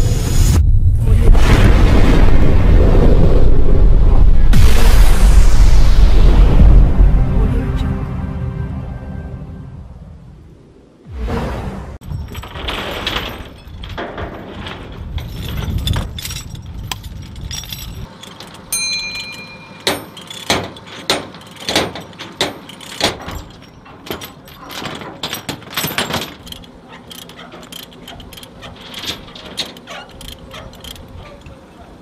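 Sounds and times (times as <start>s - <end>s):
low rumble: 0.0s - 18.1s
metal chains clanking and rattling: 12.0s - 32.0s.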